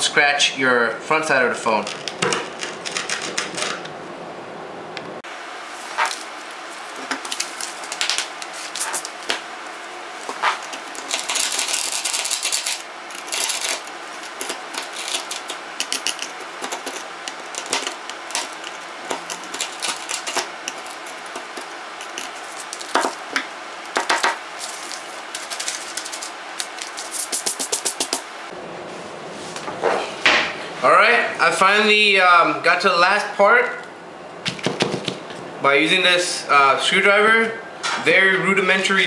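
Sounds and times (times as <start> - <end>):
screwdriver scraping glass: 5.9 - 6.3, 10.2 - 23.2.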